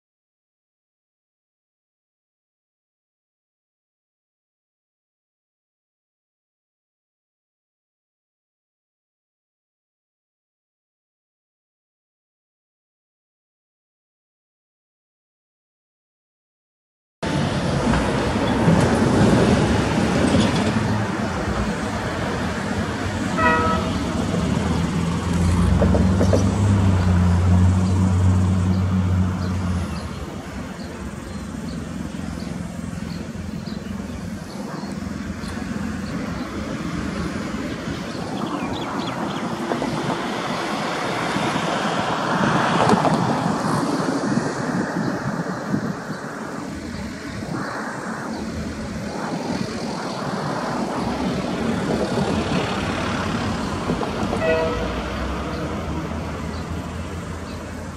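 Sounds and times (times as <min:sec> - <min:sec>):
diesel freight locomotive: 0:17.2 - 0:44.0, 0:47.8 - 0:57.9
road traffic noise: 0:17.2 - 0:57.9.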